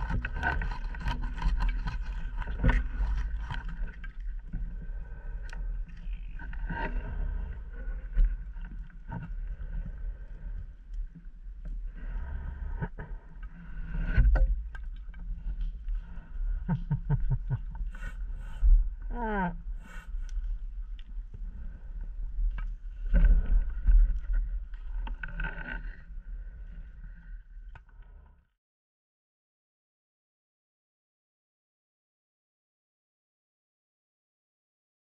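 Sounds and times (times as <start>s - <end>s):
underwater rumble: 0.0s - 28.4s.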